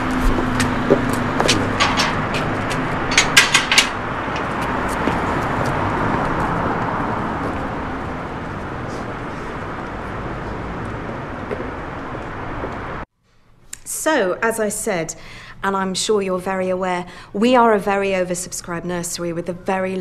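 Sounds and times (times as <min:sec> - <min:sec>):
distant city traffic hum: 0:00.0 - 0:13.1, 0:13.7 - 0:20.0
metal gate clicking and latching: 0:00.5 - 0:04.6.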